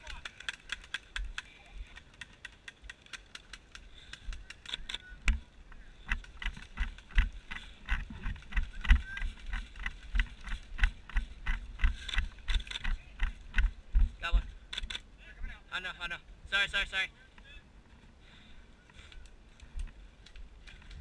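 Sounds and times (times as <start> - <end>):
gear rattling and clicking: 0.0 - 15.0.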